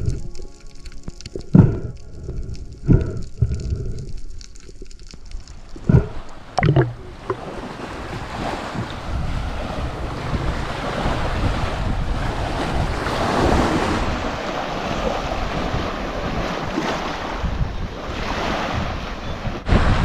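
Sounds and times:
wind buffeting microphone: 0.0 - 0.3, 5.6 - 20.0
heavy low rumble: 0.0 - 0.4, 1.2 - 7.4
sea and surf: 0.0 - 3.9, 5.0 - 20.0.

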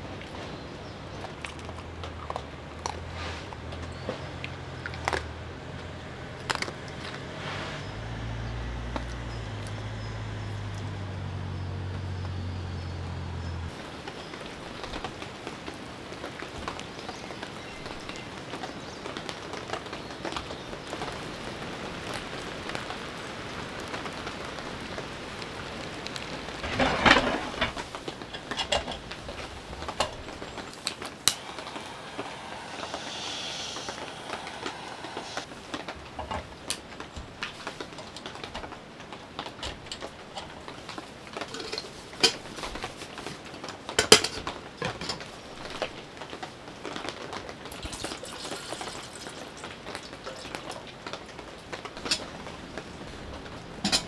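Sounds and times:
heavy rain pattering on a tent: 0.0 - 12.4, 13.1 - 54.0
low hum: 31.2 - 35.5.

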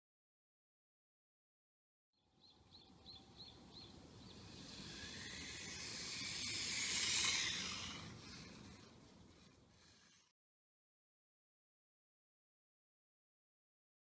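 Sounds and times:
tyre hiss on asphalt: 4.1 - 10.3
toy car motor whine: 4.2 - 10.4.

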